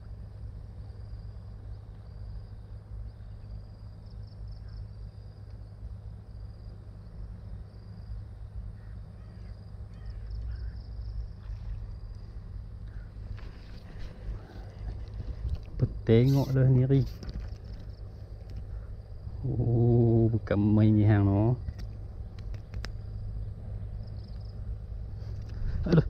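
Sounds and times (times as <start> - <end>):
insect trilling: 0.9 - 24.8
bird calls: 3.2 - 5.0, 8.7 - 11.9, 12.8 - 15.0
wind rumbling on microphone: 9.9 - 26.0.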